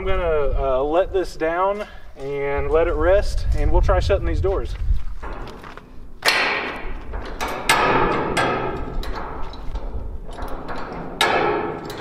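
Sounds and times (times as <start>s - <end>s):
metal jack clanking: 5.2s - 12.0s.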